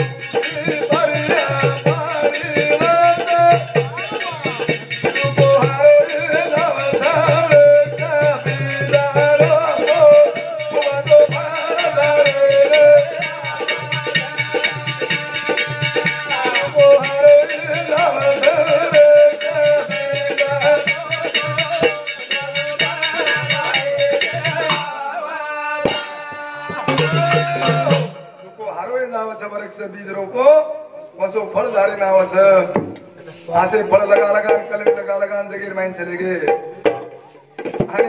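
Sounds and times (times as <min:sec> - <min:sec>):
fast hand-drum percussion: 0:00.0 - 0:25.0, 0:25.8 - 0:28.2, 0:33.6 - 0:35.3, 0:36.4 - 0:38.0.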